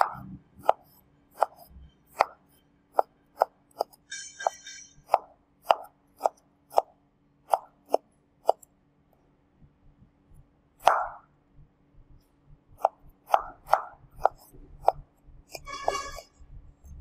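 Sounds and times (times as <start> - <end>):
knife chopping vegetables: 0.0 - 6.9, 7.5 - 8.7, 10.8 - 11.3, 12.8 - 16.2.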